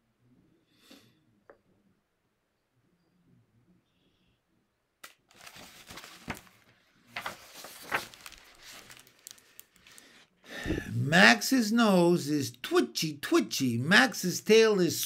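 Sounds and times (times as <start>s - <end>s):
book pages rustling and turning: 5.0s - 10.2s.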